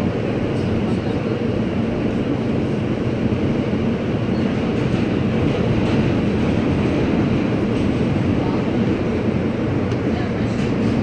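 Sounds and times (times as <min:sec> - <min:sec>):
subway wheels rumbling on rail: 0:00.0 - 0:11.0.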